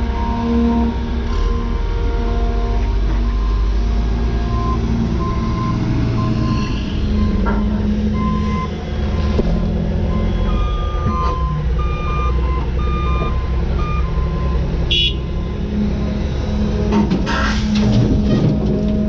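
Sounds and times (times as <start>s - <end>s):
excavator diesel engine running: 0.0s - 19.0s
truck backup alarm beeping: 3.2s - 16.2s.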